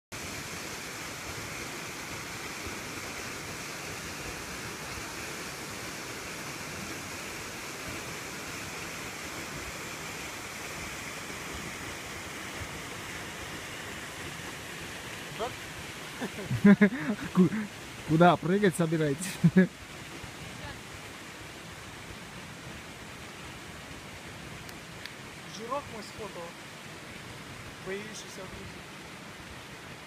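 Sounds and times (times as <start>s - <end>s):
waterfall rushing: 0.1s - 30.0s.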